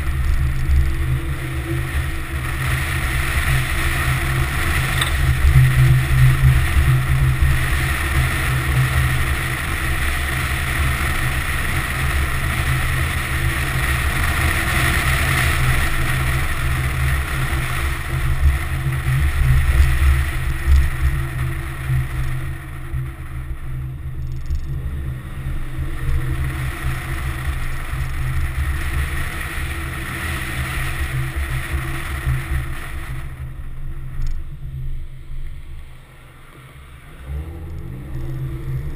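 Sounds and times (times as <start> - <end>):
road noise: 0.0 - 38.9
wind buffeting: 37.0 - 38.9.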